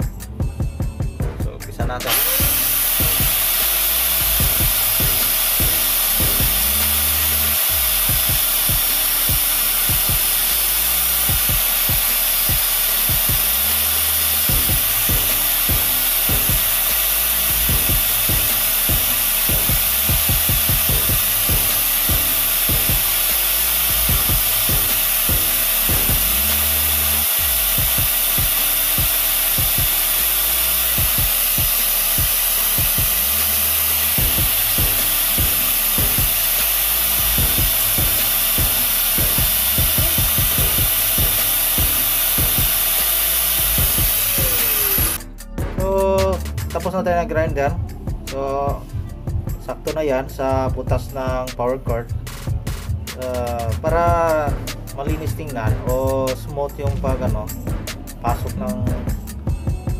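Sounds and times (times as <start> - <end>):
angle grinder grinding metal: 1.8 - 45.5.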